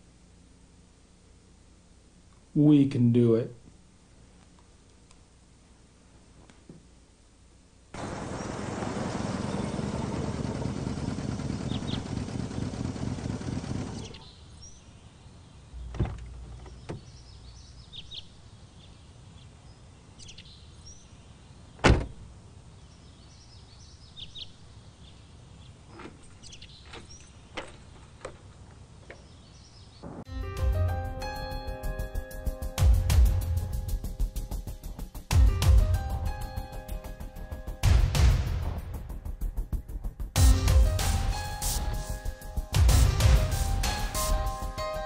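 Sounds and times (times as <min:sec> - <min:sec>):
birds chirping faintly: 0:08.0 - 0:13.0, 0:13.7 - 0:30.3
loud steady vehicle noise: 0:08.0 - 0:14.2
sharp knocks: 0:15.8 - 0:17.1.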